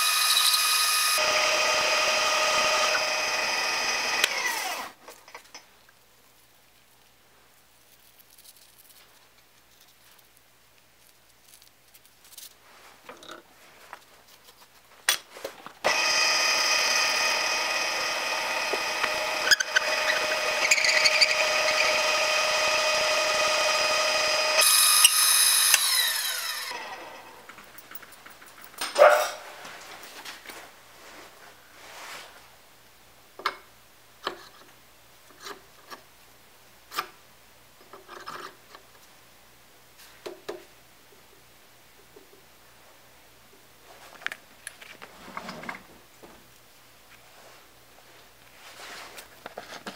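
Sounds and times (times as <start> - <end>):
drill press motor whine: 0.0 - 4.9, 15.9 - 27.3.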